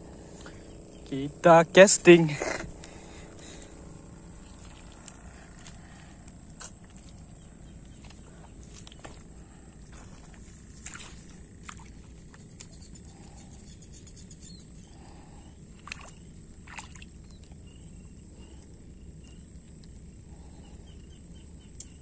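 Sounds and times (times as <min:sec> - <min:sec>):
high-pitched whine: 0:00.0 - 0:09.2
low rumble: 0:00.0 - 0:12.1.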